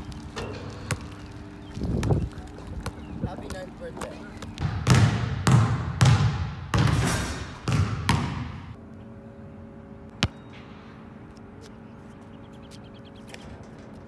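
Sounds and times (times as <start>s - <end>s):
basketball bouncing on wooden floor: 4.6s - 8.8s.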